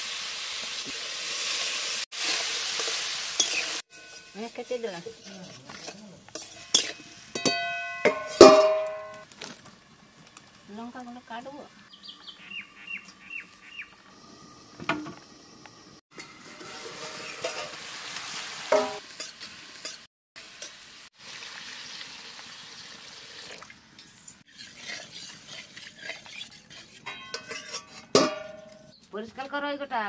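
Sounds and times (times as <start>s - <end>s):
vegetables sizzling in a pan: 0.0s - 7.6s, 13.5s - 23.5s
metal spatula scraping a pan: 1.6s - 9.2s, 16.2s - 20.8s, 24.0s - 29.0s.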